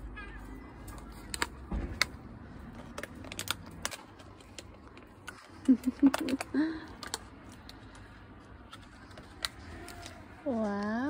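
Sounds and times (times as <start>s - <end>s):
plastic container clicks and crackles: 0.9s - 8.1s.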